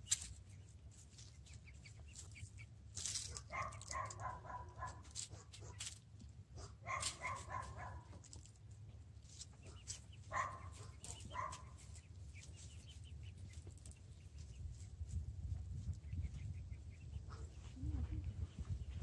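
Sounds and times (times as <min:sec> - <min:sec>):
small dog barking: 0:03.3 - 0:05.8, 0:06.6 - 0:08.2, 0:09.7 - 0:11.8.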